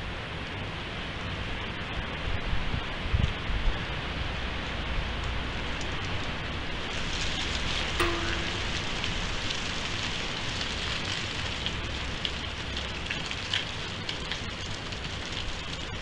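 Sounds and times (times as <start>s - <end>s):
brief tonal blip: 8.0s - 9.2s.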